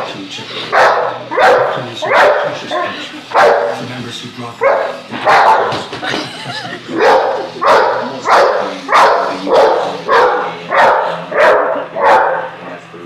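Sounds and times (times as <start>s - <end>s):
dog barking: 0.7s - 3.8s, 4.6s - 5.9s, 7.0s - 12.6s.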